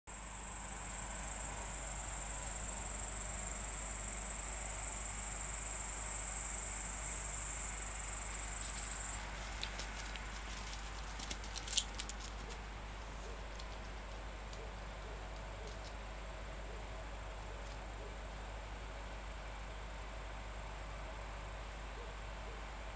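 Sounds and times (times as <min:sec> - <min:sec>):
insect chirring: 0:00.1 - 0:18.7
short clicks and rustles: 0:08.6 - 0:16.0.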